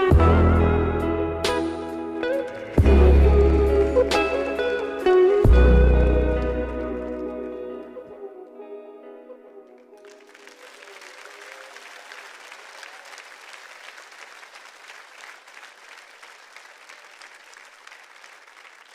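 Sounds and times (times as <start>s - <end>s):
music: 0.0s - 11.2s
audience applauding: 2.2s - 8.0s, 9.7s - 18.9s.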